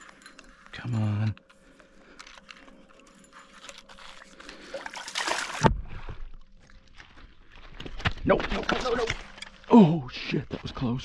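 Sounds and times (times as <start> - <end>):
fish splashing in water: 4.6 - 5.8.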